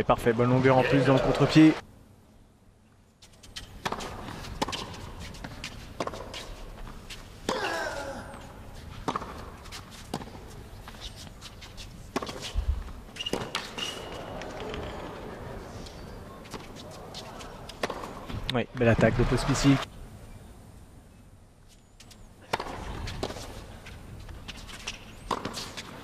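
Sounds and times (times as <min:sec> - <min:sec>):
hushed arena ambience: 0:00.0 - 0:26.0
racket striking tennis ball: 0:03.8 - 0:06.5, 0:09.0 - 0:10.4, 0:13.2 - 0:14.2, 0:17.7 - 0:18.2, 0:22.4 - 0:23.6, 0:24.6 - 0:26.0
tennis ball bouncing: 0:03.8 - 0:07.0, 0:09.0 - 0:10.5, 0:13.2 - 0:13.8, 0:17.7 - 0:18.3, 0:22.4 - 0:23.6, 0:24.8 - 0:26.0.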